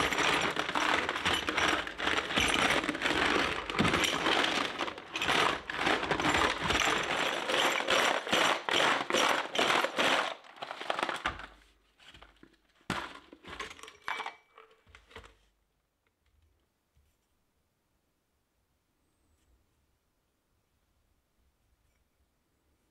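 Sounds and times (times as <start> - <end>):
knocks and clatters: 0.0 - 11.5
stones rattling in plastic tub: 0.0 - 14.5.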